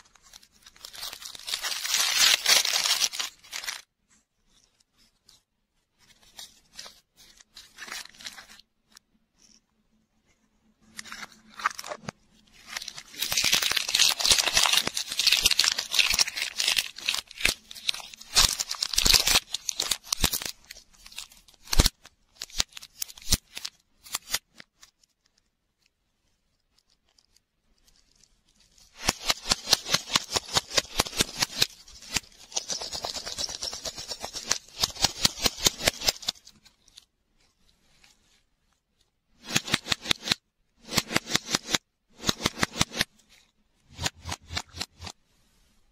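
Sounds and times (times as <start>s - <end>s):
plastic wrapper crinkling: 0.0s - 3.9s, 11.0s - 25.4s, 26.6s - 37.1s.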